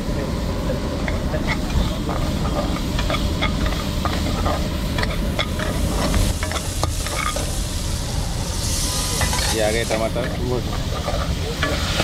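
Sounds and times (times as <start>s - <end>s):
vegetables sizzling in oil: 0.7s - 12.0s
ladle scraping pan: 1.4s - 7.6s.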